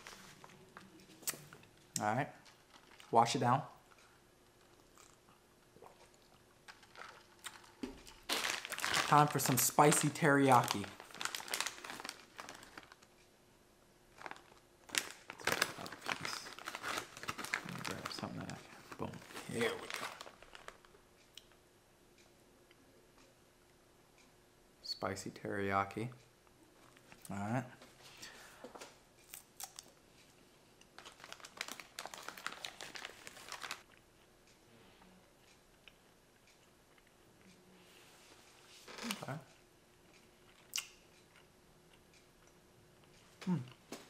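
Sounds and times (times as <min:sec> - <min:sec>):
plastic bag crinkling: 0:02.4 - 0:03.5, 0:06.6 - 0:13.1, 0:14.1 - 0:21.0, 0:31.0 - 0:33.9.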